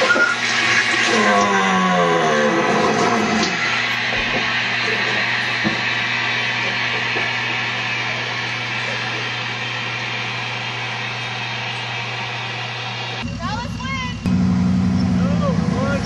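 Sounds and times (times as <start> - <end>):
vehicle engine humming: 6.4 - 16.0.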